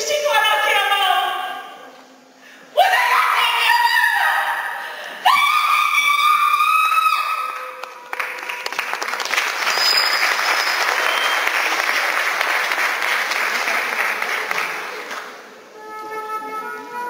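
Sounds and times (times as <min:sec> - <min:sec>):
audience applause: 0:07.5 - 0:15.4.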